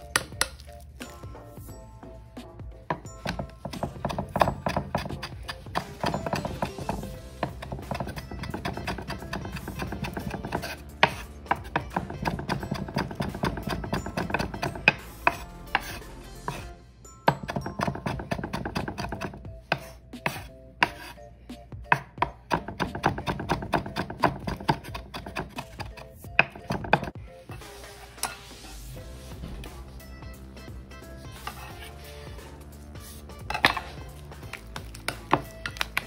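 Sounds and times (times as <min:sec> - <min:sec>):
knife chopping on wooden board: 0:02.9 - 0:16.7, 0:17.3 - 0:21.1, 0:21.9 - 0:27.2, 0:31.4 - 0:31.9, 0:33.5 - 0:36.0.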